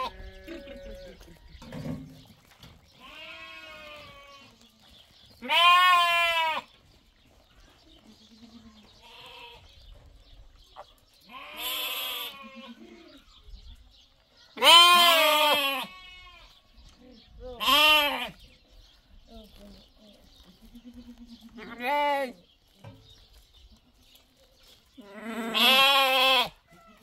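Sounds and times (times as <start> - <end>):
lambs bleating: 3.0 - 4.5, 5.4 - 6.7, 8.3 - 9.6, 11.3 - 13.0, 14.6 - 16.5, 17.6 - 18.4, 20.7 - 22.3, 25.0 - 27.0.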